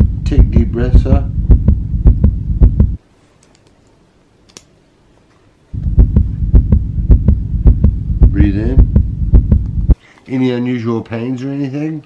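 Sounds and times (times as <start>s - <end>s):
heartbeat through stethoscope: 0.0s - 3.0s, 5.8s - 10.0s.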